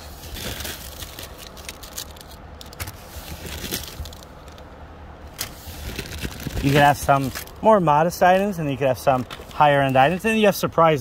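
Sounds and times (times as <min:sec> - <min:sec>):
paper cards rustling: 0:00.0 - 0:04.6, 0:05.4 - 0:07.6.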